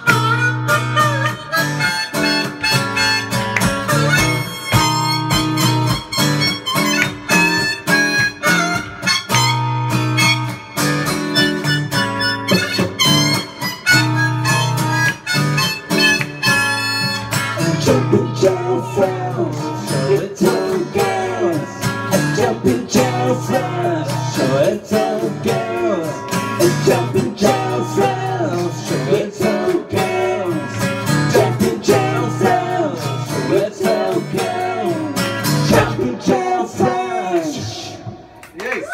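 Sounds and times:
harmonica: 0.0 - 36.1
strummed acoustic guitar: 0.0 - 37.8
person singing: 17.6 - 38.0.

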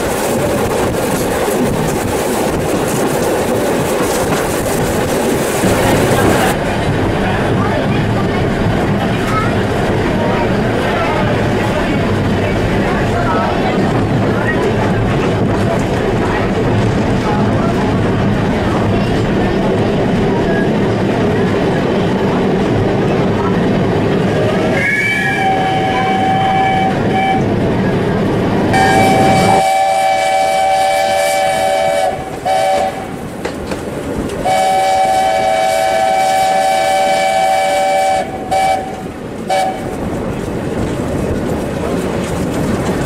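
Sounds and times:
train rail rumble: 0.0 - 43.0
steam locomotive chime whistle: 24.8 - 27.4, 28.8 - 33.0, 34.5 - 38.9.

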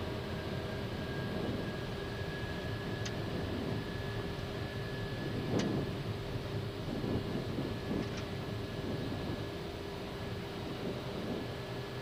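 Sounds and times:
faint steady whine: 0.0 - 12.0
rush of airflow: 4.8 - 12.0.

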